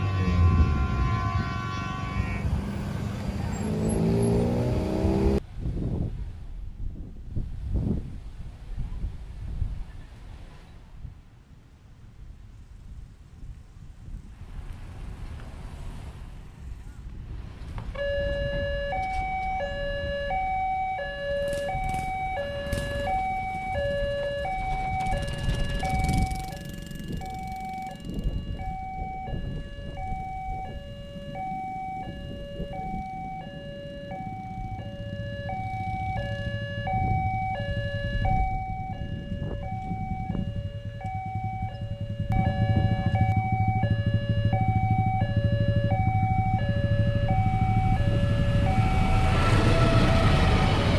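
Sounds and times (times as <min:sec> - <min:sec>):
train rumble: 0:38.1 - 0:50.9.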